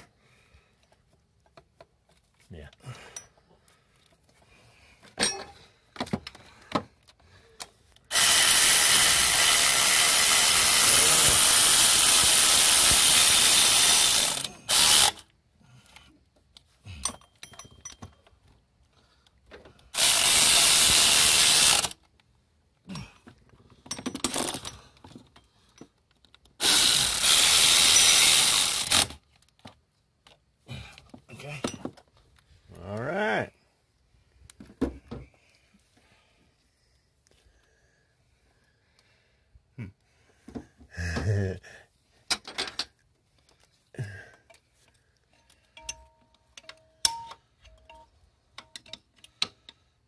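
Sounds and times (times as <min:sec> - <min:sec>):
cordless ratchet running: 0:08.1 - 0:15.3, 0:19.9 - 0:22.0, 0:26.6 - 0:29.2
tool clicks: 0:25.9 - 0:30.4.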